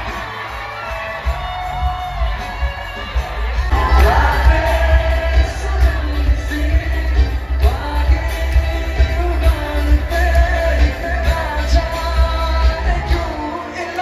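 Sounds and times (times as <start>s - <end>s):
drums: 0.0s - 14.0s
electric guitars: 0.0s - 14.0s
heavy steady bass: 1.2s - 13.4s
person singing: 3.5s - 14.0s.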